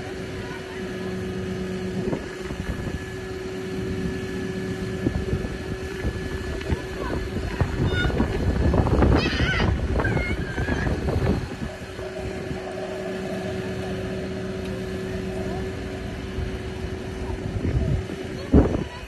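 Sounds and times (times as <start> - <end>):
diesel engine running: 0.0 - 19.0
hydraulic drive whine: 0.0 - 19.0
wind buffeting microphone: 0.0 - 19.0.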